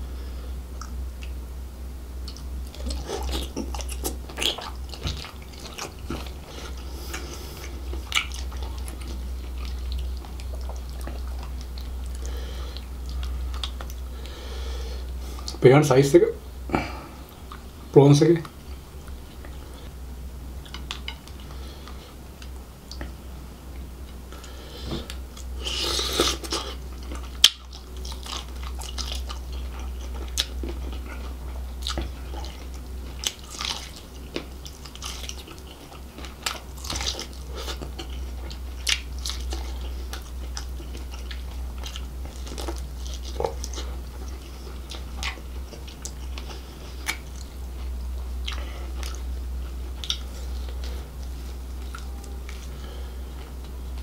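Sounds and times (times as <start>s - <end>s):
biting and chewing seafood: 2.2s - 14.4s, 24.2s - 54.0s.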